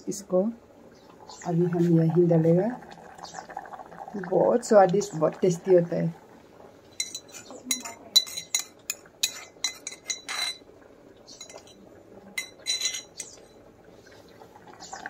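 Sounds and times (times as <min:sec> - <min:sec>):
spoon clinking in metal mortar: 0:07.0 - 0:10.6, 0:12.4 - 0:13.3.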